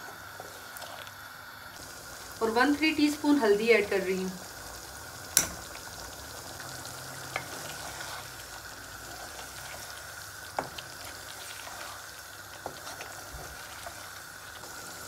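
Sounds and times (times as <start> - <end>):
chicken sizzling in a pan: 0.0 - 15.0
spatula stirring sauce: 6.6 - 15.0.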